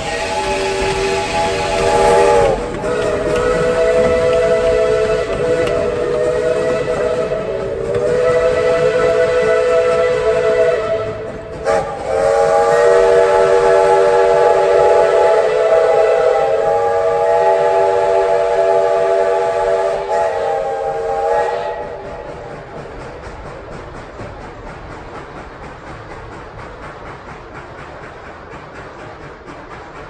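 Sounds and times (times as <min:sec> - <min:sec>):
steam locomotive whistle: 0:00.0 - 0:22.4.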